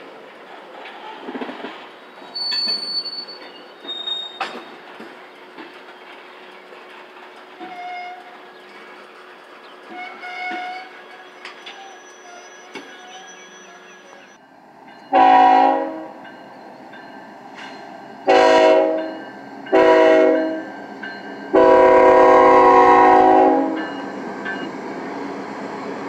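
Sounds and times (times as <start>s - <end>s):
train wheels clicking over rail joints: 0.0s - 11.9s, 16.2s - 22.1s, 23.7s - 24.8s
high wheel squeals: 2.2s - 4.9s, 9.9s - 14.4s.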